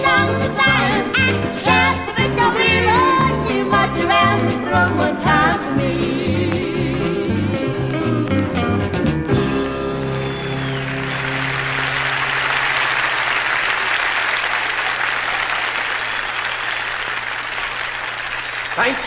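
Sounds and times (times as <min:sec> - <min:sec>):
audience applauding: 0:09.0 - 0:19.0.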